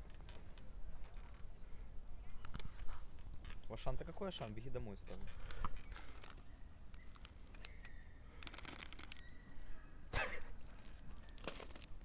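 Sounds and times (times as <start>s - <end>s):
plastic snack packet crinkling: 5.2s - 9.3s, 10.6s - 12.0s
small clicks: 5.5s - 9.3s.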